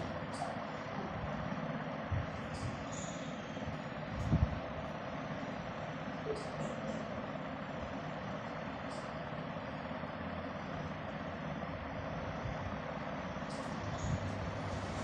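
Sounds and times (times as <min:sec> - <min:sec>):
background rumble and hiss: 0:10.5 - 0:15.0.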